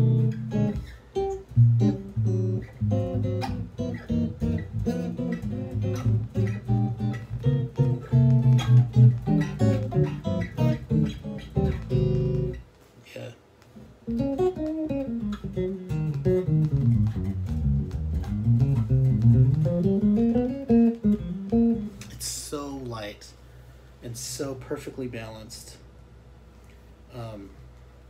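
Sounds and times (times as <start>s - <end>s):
electric bass played fingerstyle: 0.0s - 12.7s, 14.0s - 22.4s.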